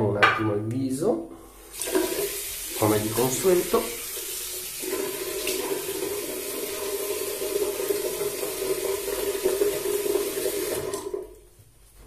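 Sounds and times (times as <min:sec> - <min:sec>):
tap running into sink: 0:01.8 - 0:03.5.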